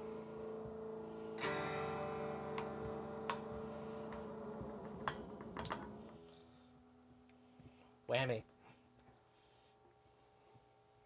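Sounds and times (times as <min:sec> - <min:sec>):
electric guitar strummed and picked: 0:00.0 - 0:06.3.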